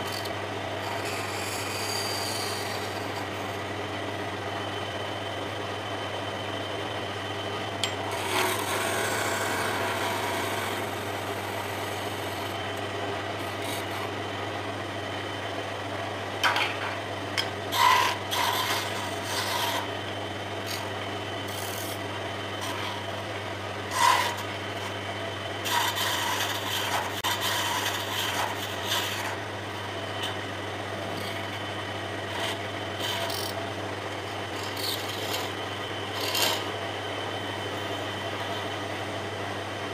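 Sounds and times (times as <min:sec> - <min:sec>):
chisel scraping spinning wood: 0:00.0 - 0:03.7, 0:07.8 - 0:14.2, 0:17.7 - 0:25.0, 0:25.6 - 0:36.8
wood lathe humming: 0:00.0 - 0:05.6, 0:06.7 - 0:15.5, 0:17.4 - 0:39.3.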